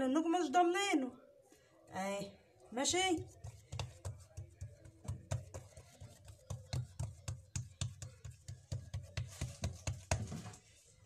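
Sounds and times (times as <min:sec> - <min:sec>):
hands patting dough on table: 0:03.2 - 0:10.7.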